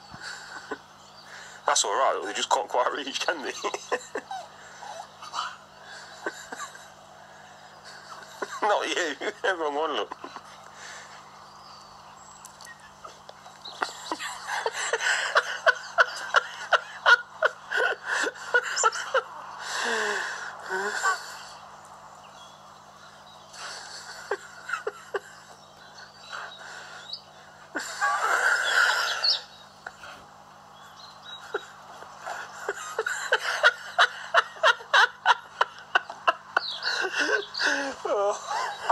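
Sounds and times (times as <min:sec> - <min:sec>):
person laughing breathily: 0:00.1 - 0:01.7, 0:03.6 - 0:08.8, 0:12.6 - 0:21.7, 0:23.5 - 0:30.3, 0:31.4 - 0:38.9.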